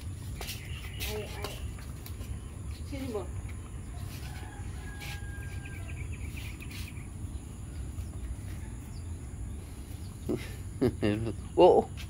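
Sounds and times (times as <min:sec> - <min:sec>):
bird chirps: 0:00.2 - 0:02.6, 0:03.5 - 0:10.5.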